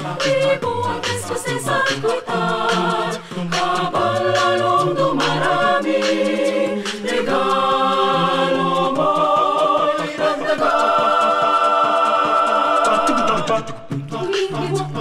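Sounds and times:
mixed choir singing a cappella: 0.0 - 15.0.

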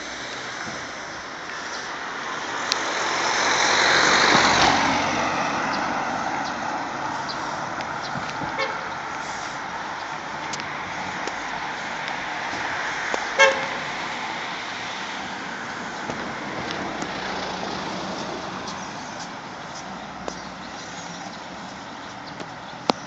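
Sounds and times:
hum of passing cars: 0.0 - 23.0
car horn toot: 8.6 - 8.9, 13.4 - 13.9.

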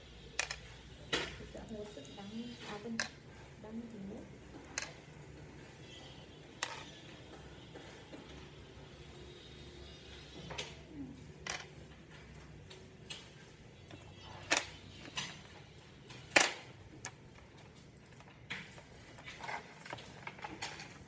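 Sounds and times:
magnetic balls clicking together: 0.4 - 0.6, 2.7 - 5.3.

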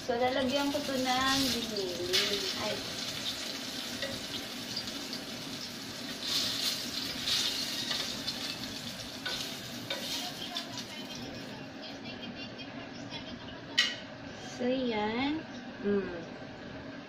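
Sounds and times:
eggplant sizzling in hot oil: 0.0 - 11.6.

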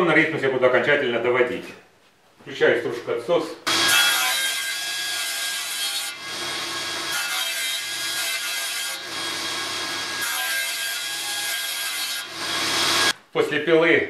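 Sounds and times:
table saw cutting wood: 3.7 - 13.1.

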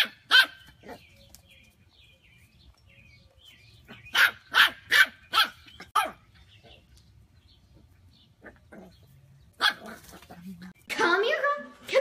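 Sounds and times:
puppy barking: 0.0 - 1.0, 3.9 - 6.2, 9.6 - 10.3.

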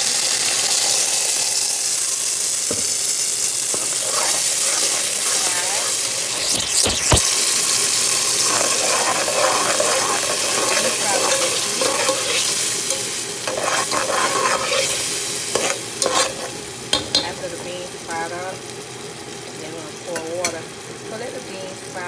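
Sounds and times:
beans sizzling in hot oil: 0.0 - 22.0
utensil scraping a pan: 3.6 - 7.3, 8.1 - 17.3.

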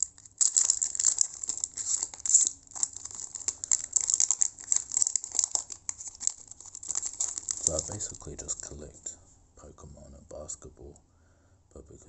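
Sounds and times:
wrapper crinkling and tearing: 0.0 - 9.1.

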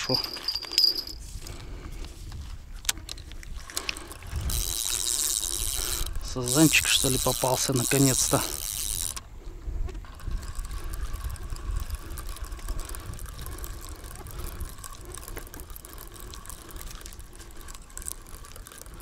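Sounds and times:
fishing reel ticking: 0.1 - 19.0
wind rumble on microphone: 1.0 - 5.0, 9.3 - 17.8.

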